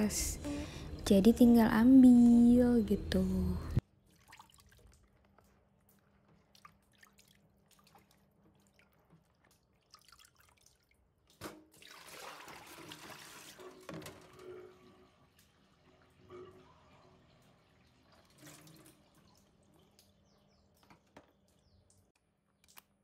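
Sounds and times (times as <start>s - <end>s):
water splashing from tub: 3.8s - 5.3s, 5.9s - 14.3s, 17.3s - 20.2s.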